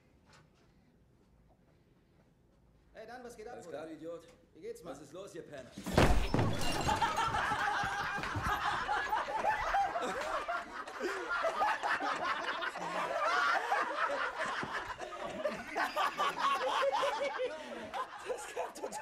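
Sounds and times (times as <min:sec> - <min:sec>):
men laughing: 0:06.5 - 0:19.0.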